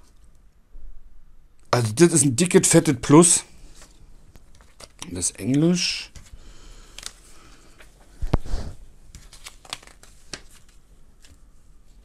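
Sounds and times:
light paper crackles: 3.7s - 12.0s
paper rustling: 3.7s - 12.0s.

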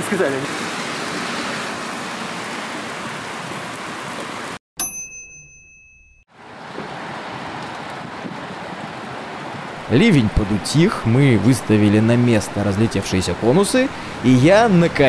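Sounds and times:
bell-like ding: 4.8s - 6.3s
heavy rain hissing: 6.7s - 15.0s.

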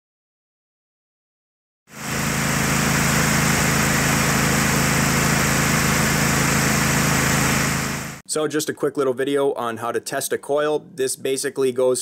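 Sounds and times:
mower engine running: 1.9s - 8.2s.

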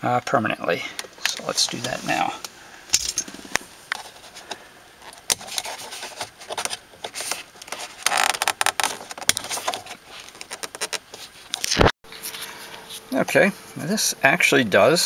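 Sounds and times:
plastic scraping: 3.4s - 11.9s.

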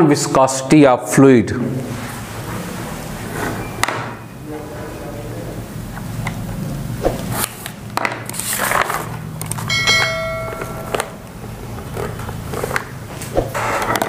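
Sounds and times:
notification bell chime: 9.7s - 11.2s
low hum: 9.7s - 11.8s.

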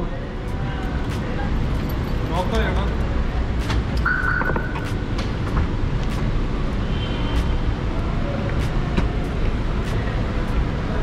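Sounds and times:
road vehicle rumble: 0.0s - 11.0s.

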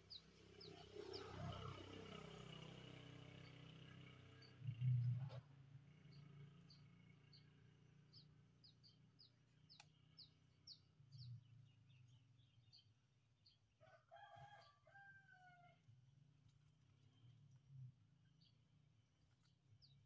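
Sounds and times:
small bird chirping: 6.0s - 13.6s
rooster crowing: 13.8s - 15.8s.

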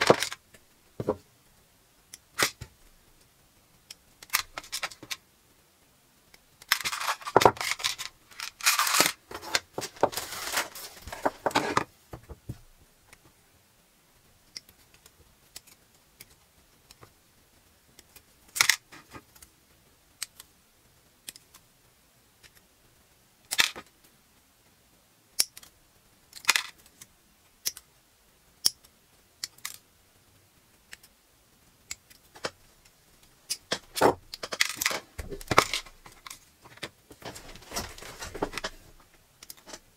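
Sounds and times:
plastic parts clattering in tub: 0.0s - 0.4s, 6.7s - 11.9s, 33.7s - 39.0s.

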